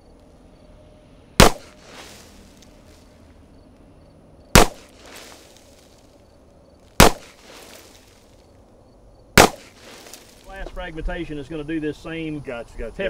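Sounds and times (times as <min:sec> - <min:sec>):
handgun shots: 0:01.4 - 0:01.8, 0:04.6 - 0:05.0, 0:07.0 - 0:07.4, 0:09.4 - 0:09.8.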